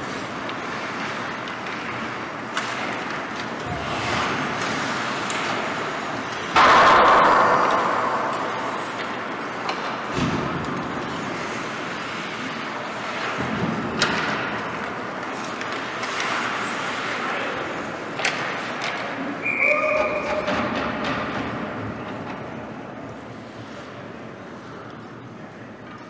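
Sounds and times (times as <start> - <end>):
skates scraping on ice: 8.4 - 18.8.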